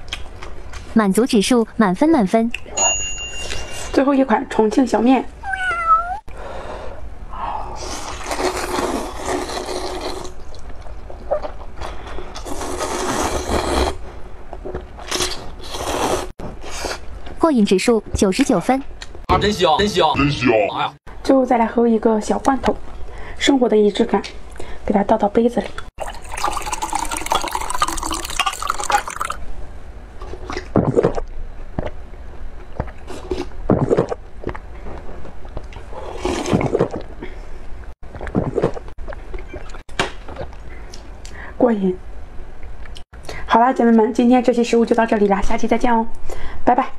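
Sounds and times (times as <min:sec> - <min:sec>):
person slurping noodles: 0:07.8 - 0:10.4, 0:12.4 - 0:14.0, 0:15.0 - 0:17.0, 0:35.9 - 0:37.0
sipping from mug: 0:26.0 - 0:29.4
syrup pouring into glass mug: 0:26.0 - 0:29.4.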